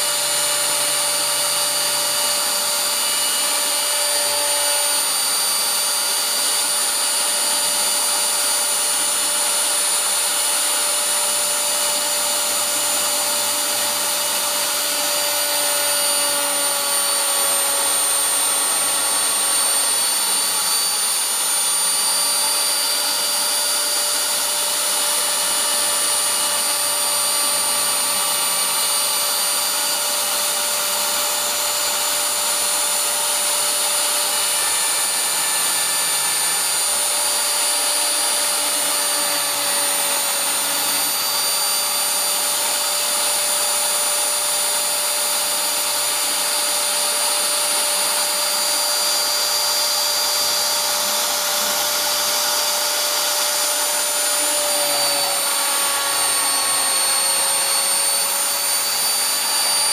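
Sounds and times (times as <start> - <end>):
spindle motor whine: 0.0 - 59.9
stepper motor tones: 0.0 - 59.9.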